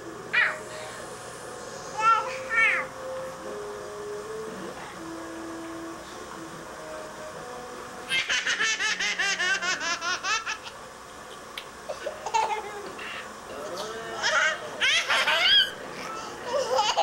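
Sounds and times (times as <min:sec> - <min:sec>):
baby giggling: 0:11.9 - 0:13.3, 0:14.2 - 0:15.8, 0:16.4 - 0:17.0.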